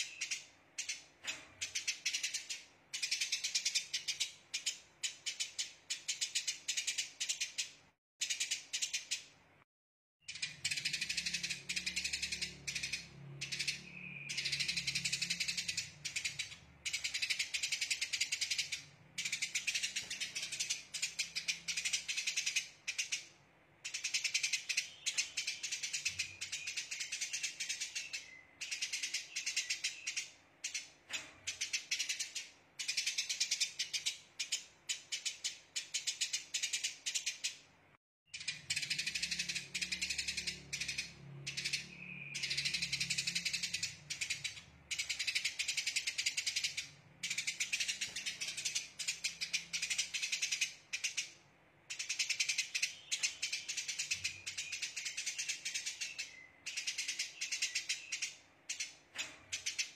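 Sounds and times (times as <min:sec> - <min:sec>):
sparrow chattering: 0:00.0 - 0:09.4, 0:10.2 - 0:37.6, 0:38.3 - 0:59.9.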